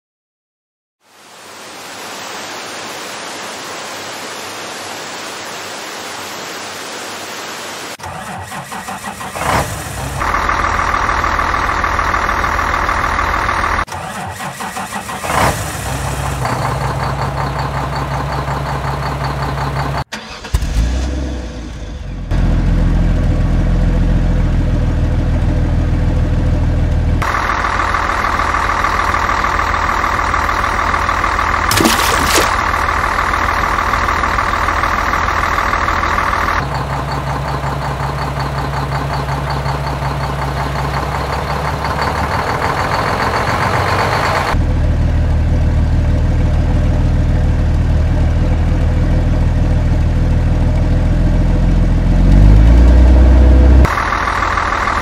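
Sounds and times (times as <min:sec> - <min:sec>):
truck engine running and idling: 0:08.0 - 0:31.7, 0:32.4 - 0:55.0
water rushing over a weir: 0:31.7 - 0:32.8.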